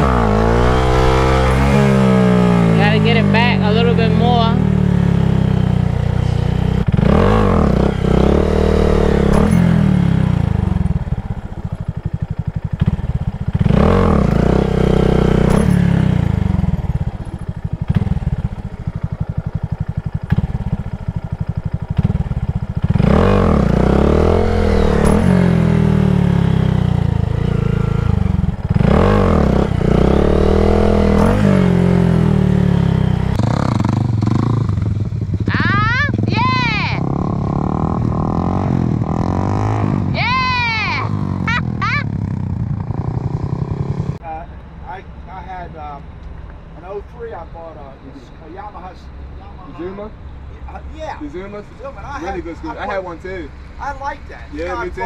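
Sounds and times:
motorcycle engine revving: 0.0s - 44.2s.

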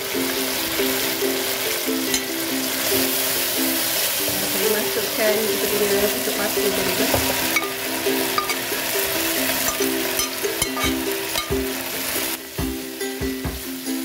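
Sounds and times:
vegetables sizzling in wok: 0.0s - 14.0s
utensils scraping and tapping pan: 6.6s - 11.8s.

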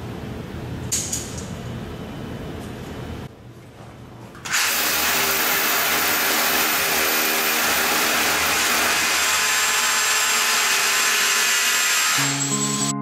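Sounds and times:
hammer drill boring into wall: 4.5s - 12.9s.

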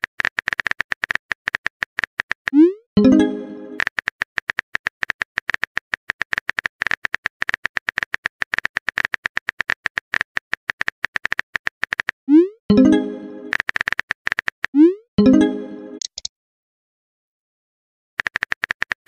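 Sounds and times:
keyboard typing clicks: 0.2s - 16.3s
message alert chime: 3.0s - 3.8s, 12.7s - 13.6s, 15.2s - 16.0s.

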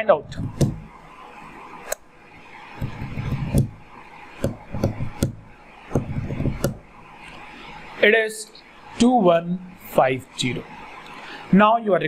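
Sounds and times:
dull thumps and knocks: 4.4s - 6.8s.

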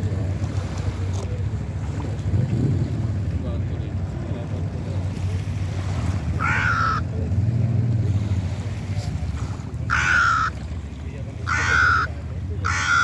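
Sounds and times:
crow cawing harshly: 6.4s - 7.0s, 9.9s - 10.6s, 11.4s - 13.0s.

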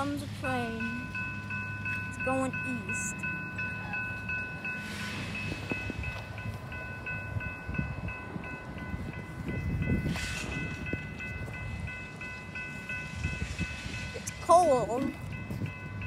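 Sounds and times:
railroad crossing bell ringing: 0.0s - 16.0s.

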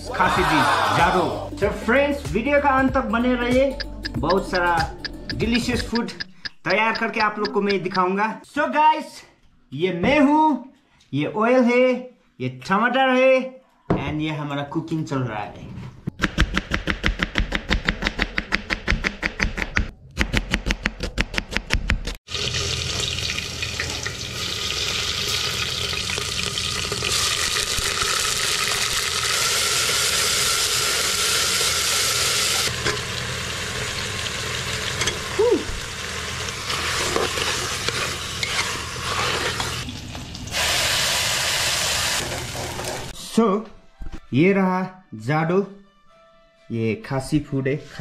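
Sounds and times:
hot oil sizzling: 22.3s - 43.2s.

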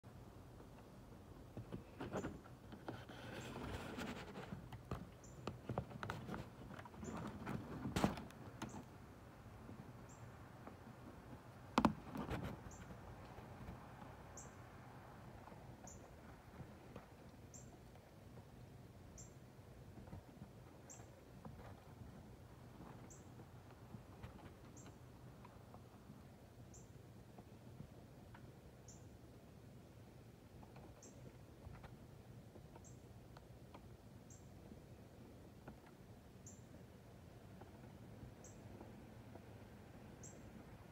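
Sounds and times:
rustling: 0.6s - 26.4s.

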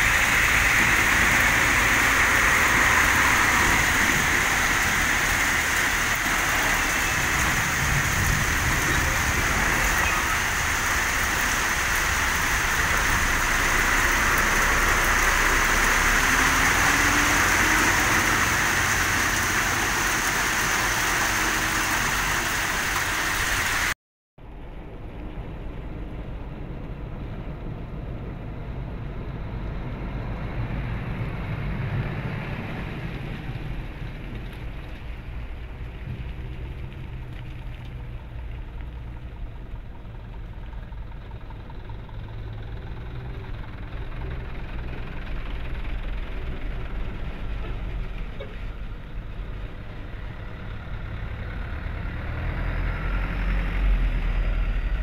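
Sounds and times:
loud even hiss: 0.0s - 24.0s
diesel truck engines idling: 38.0s - 55.0s.

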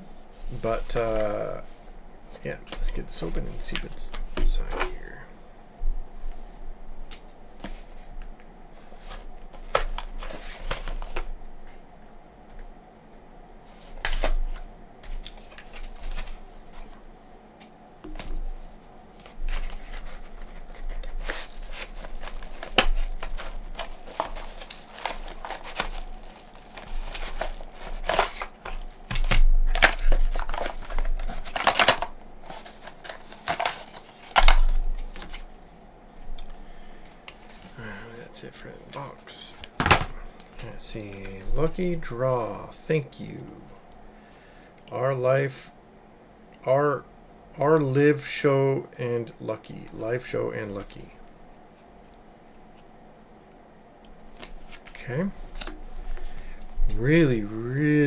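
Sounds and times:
cardboard and plastic rustling: 8.8s - 11.3s, 13.7s - 17.0s, 18.0s - 35.6s, 54.3s - 57.8s.

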